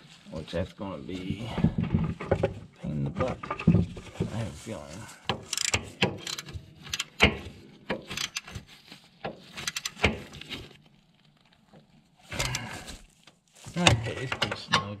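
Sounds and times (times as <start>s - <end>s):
socket ratchet clicking: 5.4s - 7.3s, 8.1s - 8.5s, 9.6s - 10.1s.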